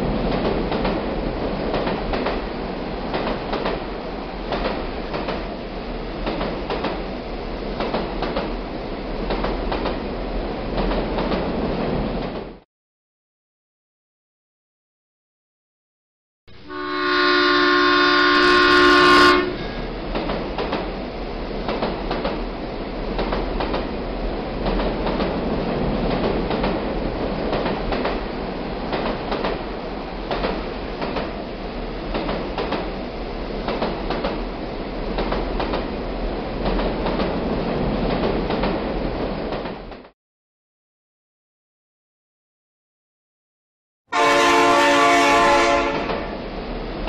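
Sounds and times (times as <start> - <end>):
train rumbling past: 0.0 - 12.6, 16.6 - 40.1, 44.2 - 47.0
train horn: 16.5 - 19.9, 44.1 - 46.4.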